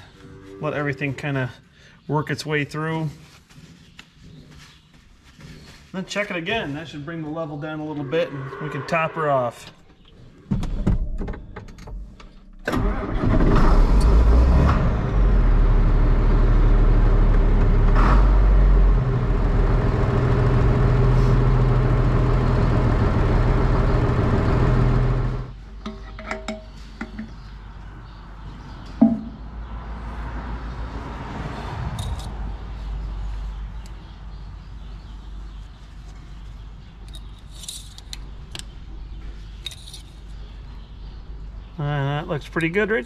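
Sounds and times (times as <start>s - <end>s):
diesel tractor engine running: 12.7s - 25.6s.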